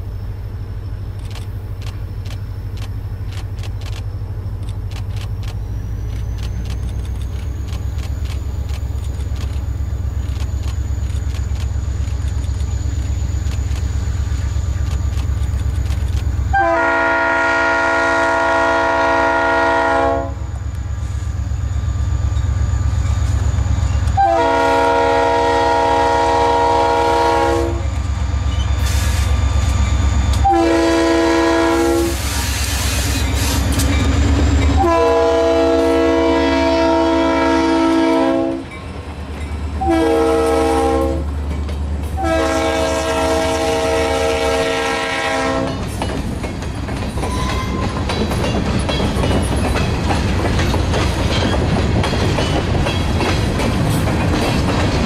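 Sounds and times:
locomotive engine drone: 0.0 - 55.0
locomotive air horn blasts: 16.5 - 20.6, 24.1 - 28.0, 30.4 - 33.8, 34.7 - 38.7, 39.8 - 41.3, 42.2 - 45.8
train wheels clacking on rails: 20.7 - 35.7, 37.9 - 43.7, 44.6 - 55.0.

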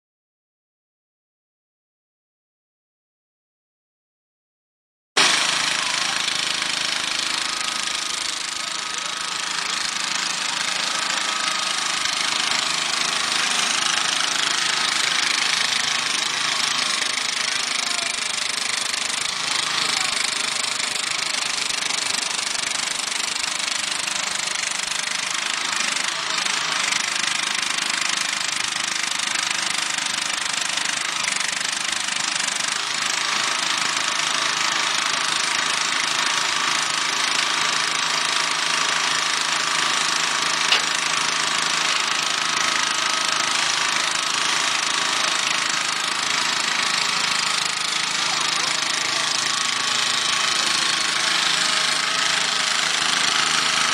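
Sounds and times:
tractor engine running under load: 5.2 - 23.6, 36.5 - 53.9.

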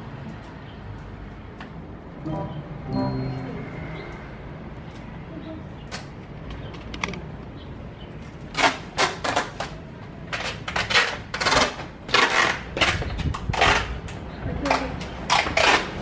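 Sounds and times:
packing tape pulled off roll: 8.5 - 13.9.

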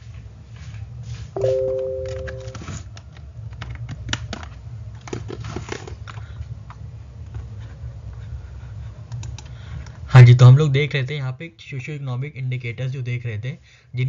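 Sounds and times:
low electrical hum: 0.0 - 14.0
keyboard keys clicking: 1.4 - 2.7.

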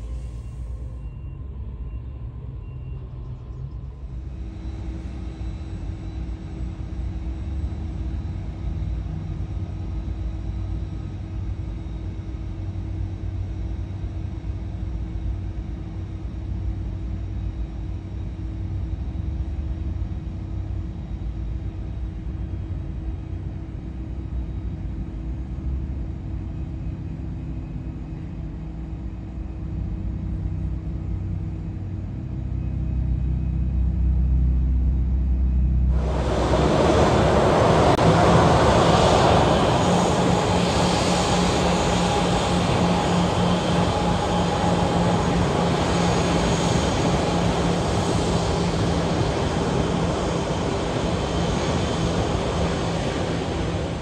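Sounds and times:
jet engines rumbling: 35.7 - 54.0.

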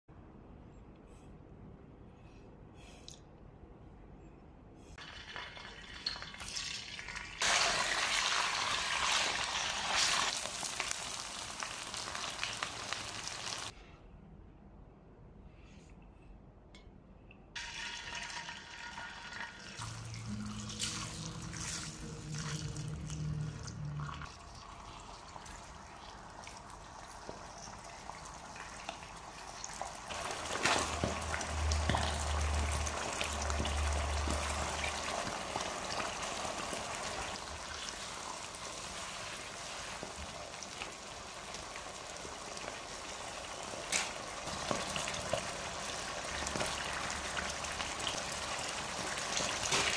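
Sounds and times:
chili paste sizzling in hot oil: 5.0 - 13.8, 24.4 - 49.9.

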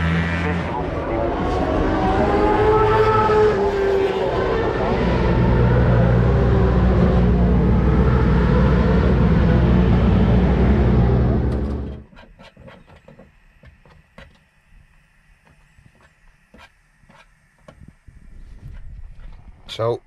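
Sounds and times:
racing motorcycle engines droning: 0.0 - 12.1.

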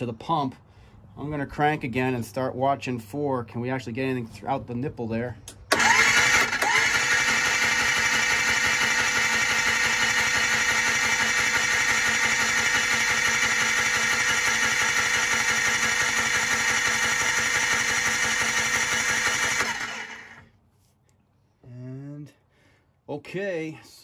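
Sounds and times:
electric starter cranking engine: 5.7 - 20.5.

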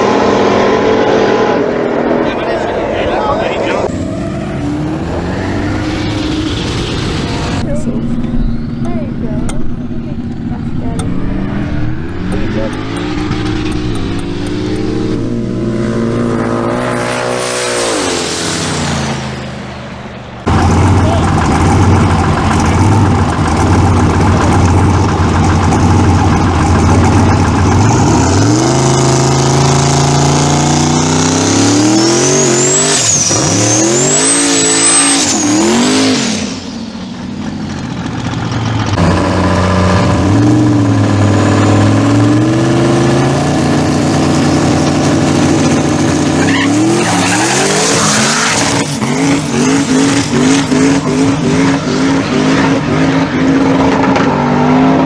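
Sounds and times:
truck engine revving: 0.0 - 55.0
tyres squealing: 46.3 - 49.1.

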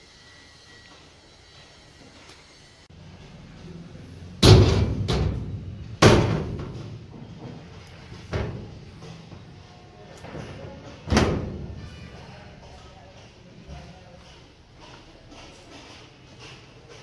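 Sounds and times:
metal cabinet doors banging: 4.4 - 7.6, 8.2 - 8.8, 11.0 - 11.8.

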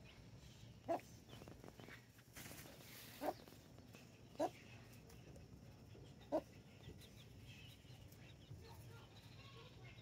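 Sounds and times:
chicks peeping: 0.0 - 10.0
chicken clucking: 0.8 - 8.2.

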